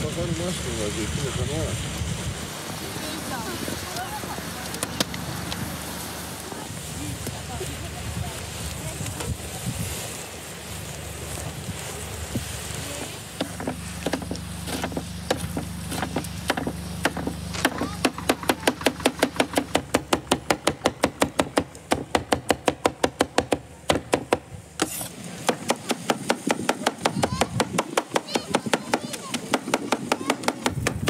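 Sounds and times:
cleaver chopping on wooden board: 0:13.4 - 0:31.0.

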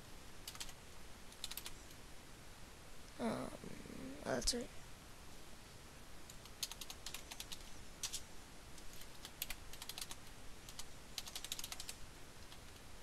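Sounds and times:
typing on computer keyboard: 0:00.4 - 0:00.8, 0:01.4 - 0:01.8, 0:06.4 - 0:08.2, 0:08.8 - 0:12.7.

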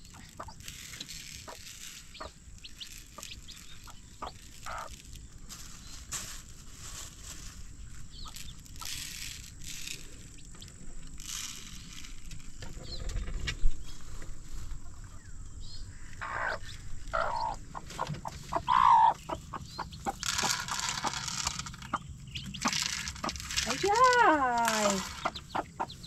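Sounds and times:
chicks peeping: 0:00.0 - 0:06.1, 0:07.0 - 0:08.9, 0:12.6 - 0:26.0
feed rattling as poured: 0:00.0 - 0:07.6, 0:11.0 - 0:12.8, 0:20.1 - 0:21.9, 0:22.5 - 0:25.5
straw rustling: 0:00.0 - 0:26.0
hen clucking: 0:00.1 - 0:00.6, 0:01.4 - 0:04.9, 0:16.1 - 0:26.0.

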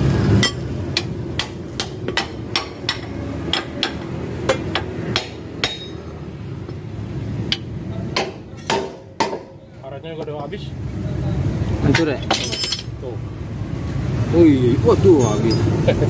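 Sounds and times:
hammer striking steel: 0:00.3 - 0:06.1, 0:07.5 - 0:09.6.

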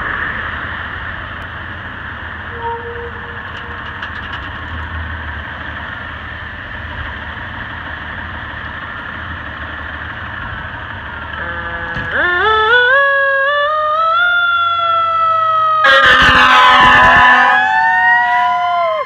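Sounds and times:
diesel engine running: 0:00.0 - 0:19.0
fire engine siren rising: 0:11.3 - 0:19.0.

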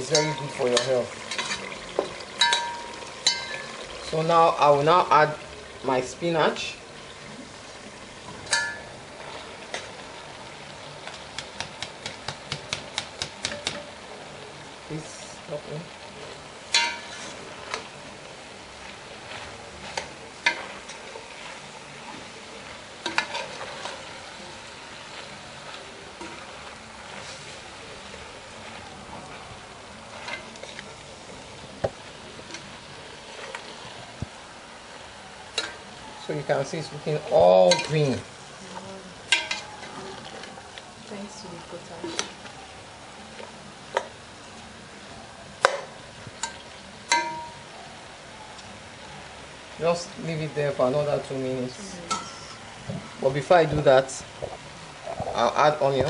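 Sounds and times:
metal spoon clinking pot: 0:00.0 - 0:03.8, 0:08.4 - 0:09.0, 0:16.7 - 0:17.2, 0:37.7 - 0:38.0, 0:39.3 - 0:39.9, 0:46.4 - 0:47.6
spoon stirring in metal pot: 0:00.0 - 0:03.9, 0:16.7 - 0:18.0, 0:19.2 - 0:28.8, 0:37.6 - 0:38.1, 0:39.2 - 0:40.6, 0:46.4 - 0:47.6
low steady hiss: 0:00.0 - 0:56.0
spoon tapping colander: 0:02.4 - 0:03.7, 0:46.4 - 0:47.6.

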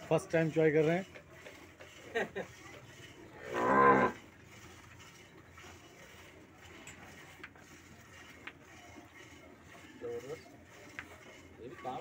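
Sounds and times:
cow mooing: 0:03.4 - 0:04.2.

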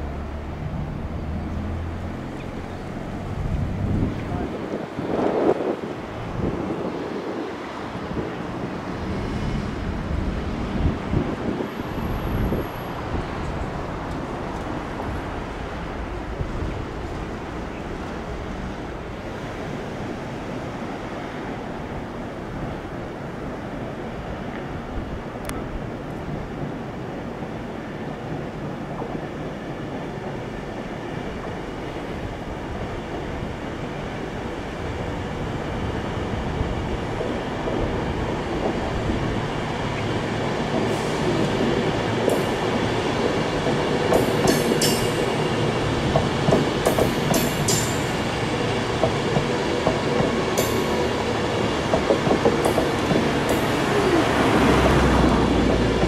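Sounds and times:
train wheel-on-rail rumble: 0:00.0 - 0:56.0
wheels clicking on track: 0:36.6 - 0:56.0.

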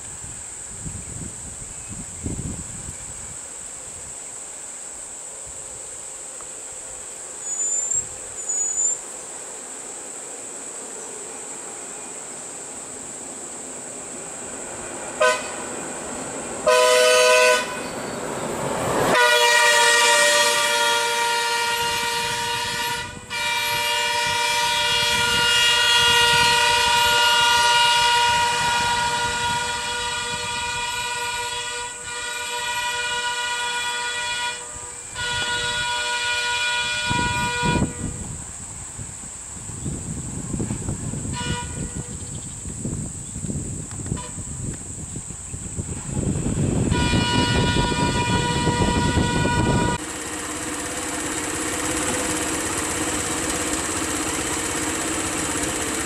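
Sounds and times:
bus horn blasts: 0:15.2 - 0:15.8, 0:16.6 - 0:18.2, 0:19.0 - 0:38.3, 0:41.2 - 0:42.2, 0:44.1 - 0:44.5, 0:45.9 - 0:50.6.

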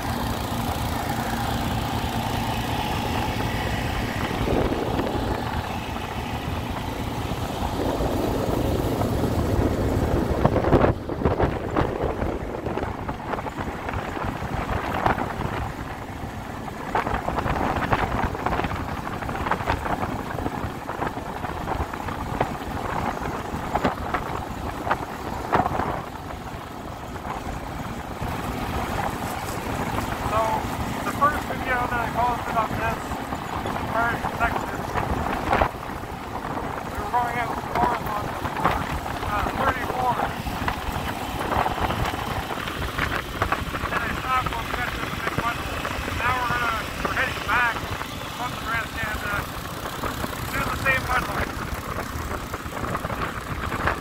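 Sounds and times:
atv engine running: 0:00.0 - 0:54.0
tyres crackling over gravel: 0:00.0 - 0:54.0
wind on microphone: 0:02.8 - 0:26.5, 0:27.1 - 0:54.0.

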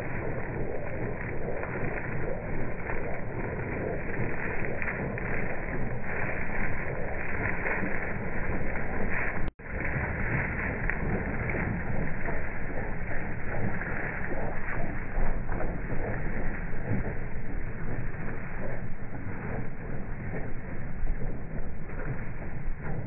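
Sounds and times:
light aircraft engine running: 0:00.0 - 0:23.0.

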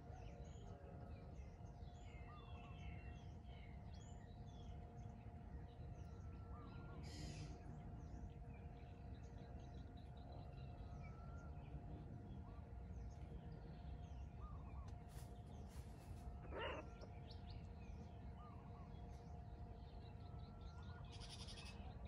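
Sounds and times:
steady low hum: 0:00.0 - 0:22.0
small birds chirping: 0:12.6 - 0:22.0.

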